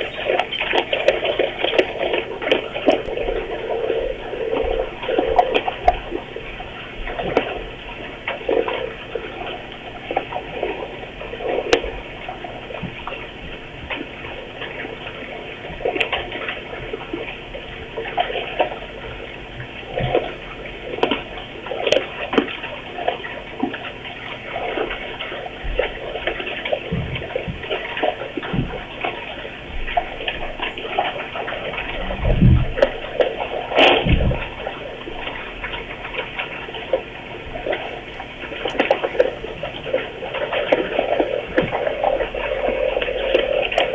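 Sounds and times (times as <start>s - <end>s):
bear chewing wetly: 0.0s - 6.3s, 25.8s - 43.9s.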